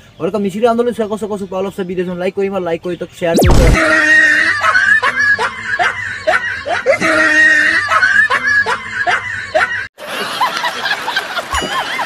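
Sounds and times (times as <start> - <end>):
looped laughter: 3.8 - 10.2.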